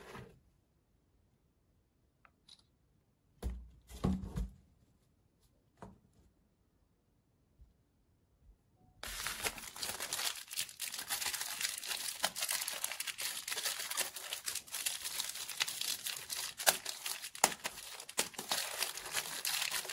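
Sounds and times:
plastic wrapper crinkling and tearing: 9.0 - 19.9.

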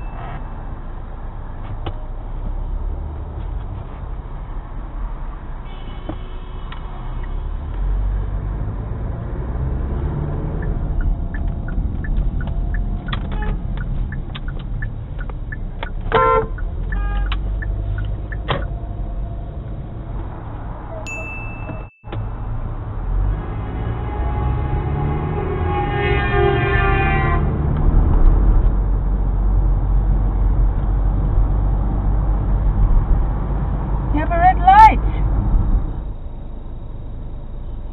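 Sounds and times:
car horn beep: 0.0 - 0.7, 5.6 - 7.4, 13.0 - 13.8, 16.0 - 17.6, 21.1 - 22.4, 23.4 - 27.5
road and engine rumble: 0.0 - 37.9.

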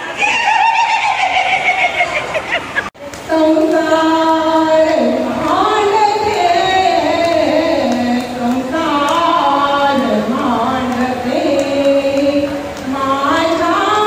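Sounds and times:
woman singing into microphone: 3.0 - 14.0.

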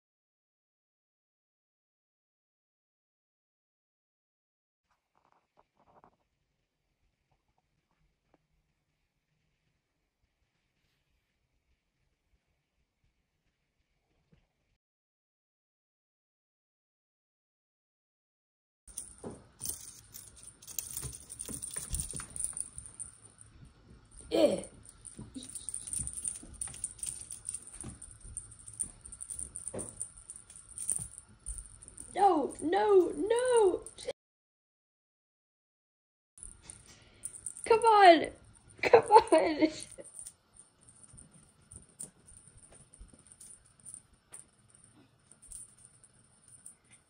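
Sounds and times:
toy rattling: 18.9 - 23.5, 24.1 - 34.1, 36.4 - 47.0
light clicks and rustles: 18.9 - 32.1.

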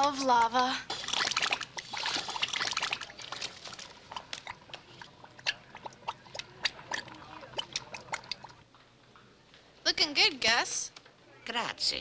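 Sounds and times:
bubbling hiss and wet pops: 0.9 - 8.6.

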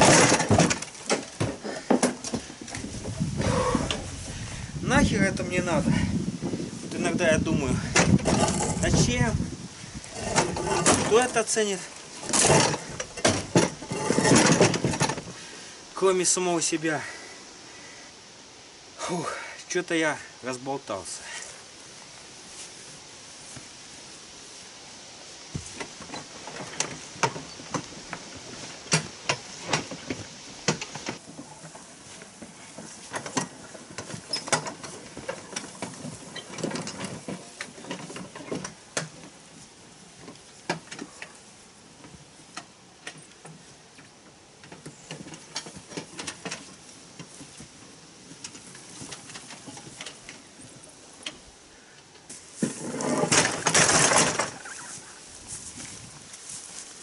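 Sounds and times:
concrete slabs bumping: 0.0 - 2.5
hand cart clattering over grass: 0.0 - 17.3, 25.3 - 51.6, 52.2 - 57.0.

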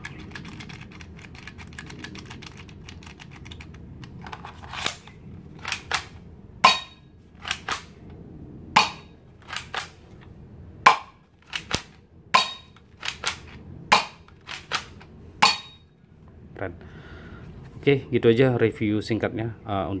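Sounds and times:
toy pistol snapping shots: 5.6 - 7.9, 8.8 - 10.0, 10.9 - 15.7.

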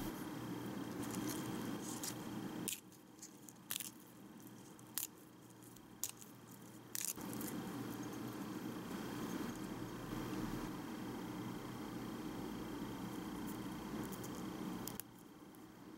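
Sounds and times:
steady low hiss: 0.0 - 15.9
lettuce leaf tearing: 6.9 - 7.2.

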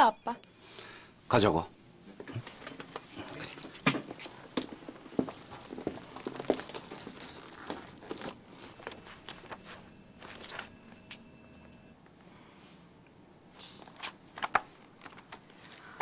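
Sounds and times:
footsteps walking away: 2.2 - 11.2
magazine pages turning: 3.6 - 10.8.

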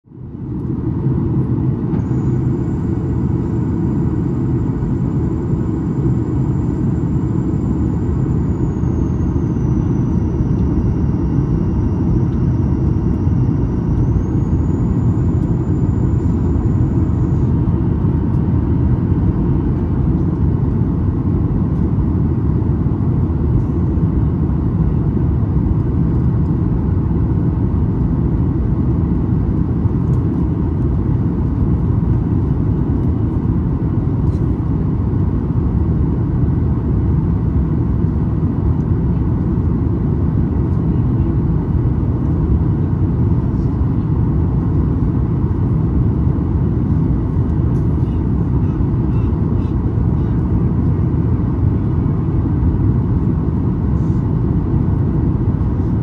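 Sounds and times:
airplane cabin roar: 0.1 - 56.0
faint high whine: 0.2 - 27.7.

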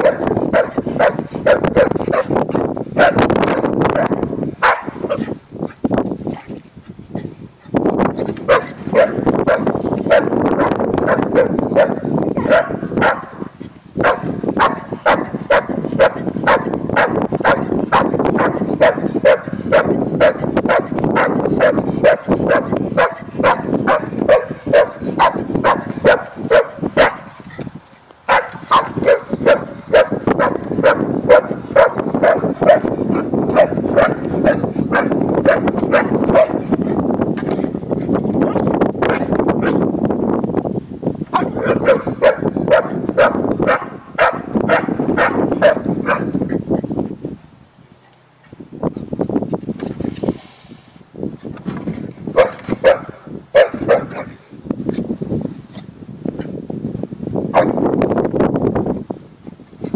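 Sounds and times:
dog barking rapidly: 0.0 - 2.4, 3.0 - 5.4, 8.4 - 27.4, 28.3 - 36.8, 38.4 - 39.9, 41.3 - 46.4, 52.3 - 54.4, 57.5 - 57.8.

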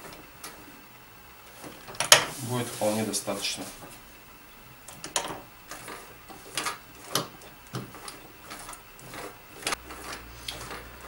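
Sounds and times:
sewing machine stitching: 5.1 - 11.0.

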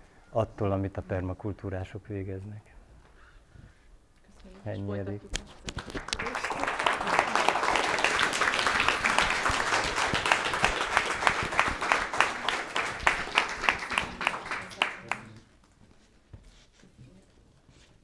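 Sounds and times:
audience applauding: 5.6 - 15.5.

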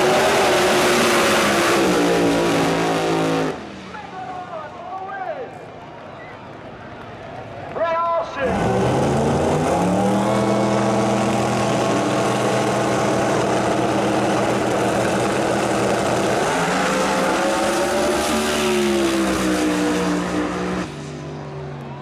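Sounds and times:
drag racing engines revving: 0.0 - 4.0, 8.2 - 21.9.

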